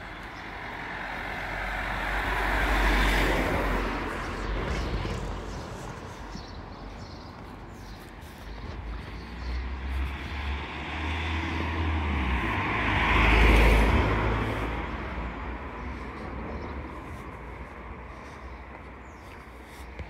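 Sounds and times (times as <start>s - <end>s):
car driving past: 9.3s - 15.8s.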